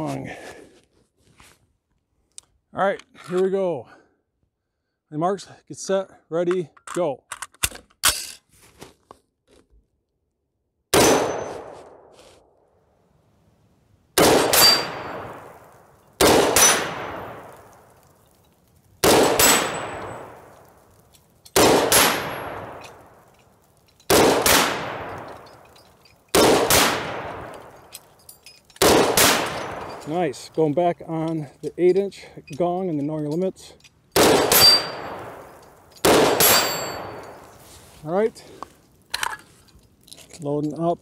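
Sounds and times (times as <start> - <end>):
rifle shots echoing: 10.9 - 12.1, 14.2 - 18.0, 19.0 - 23.3, 24.1 - 25.7, 26.3 - 27.9, 28.8 - 30.3, 34.1 - 37.6
steel targets ringing: 14.4 - 15.8, 19.3 - 20.6, 34.4 - 37.5.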